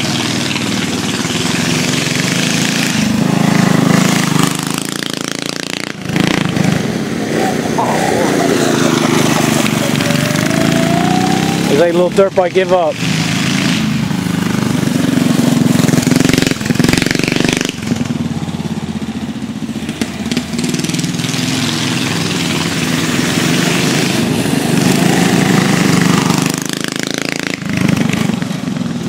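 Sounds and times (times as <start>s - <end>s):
mini bike engines racing: 0.0s - 29.0s.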